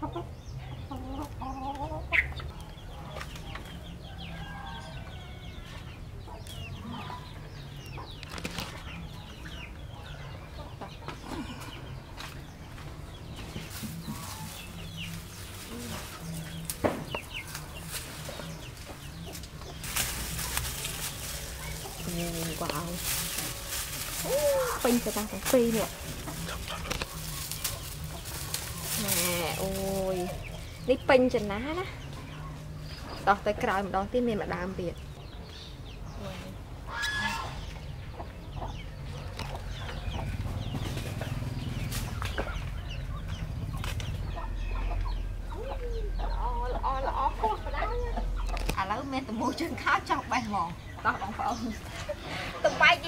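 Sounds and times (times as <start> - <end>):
chickens clucking: 0.0 - 53.0
small birds chirping: 0.0 - 53.0
plastic bag rustling: 19.4 - 30.7.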